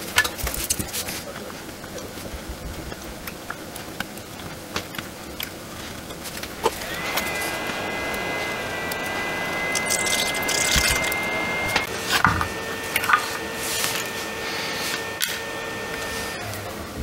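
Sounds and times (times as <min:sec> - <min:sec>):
blower hissing rush: 0:05.8 - 0:17.0
thin high whine: 0:06.3 - 0:17.0.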